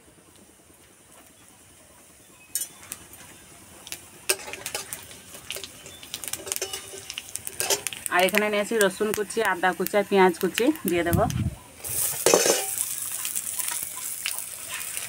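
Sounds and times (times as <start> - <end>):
seeds sizzling in hot oil: 0.0 - 15.0
metal spatula scraping metal pan: 5.6 - 8.0, 11.8 - 12.8.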